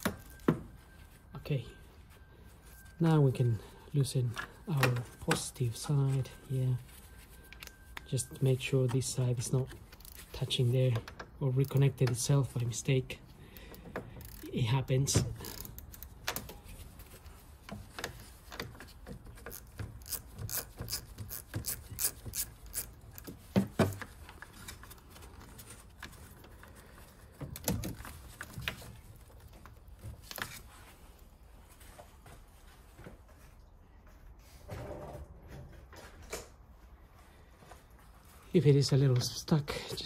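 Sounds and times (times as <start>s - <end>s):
socket ratchet clicking: 19.5s - 23.2s.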